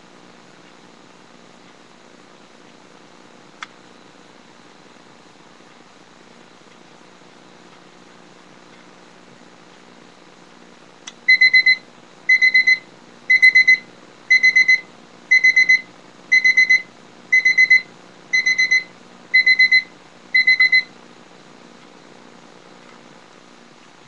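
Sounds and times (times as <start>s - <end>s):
alarm clock beeping: 11.3s - 20.9s.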